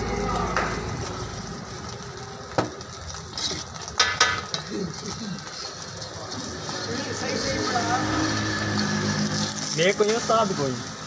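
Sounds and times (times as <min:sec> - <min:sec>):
utensils clinking on griddle: 0:02.5 - 0:11.0.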